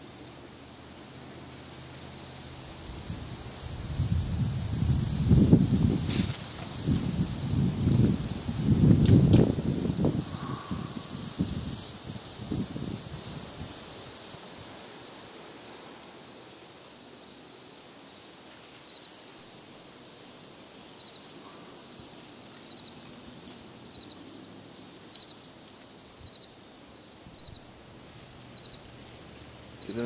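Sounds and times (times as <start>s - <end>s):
faint hiss: 0.0s - 30.0s
insect double chirp: 5.0s - 11.6s, 20.9s - 21.3s, 22.7s - 23.0s, 23.8s - 24.3s, 25.1s - 29.0s.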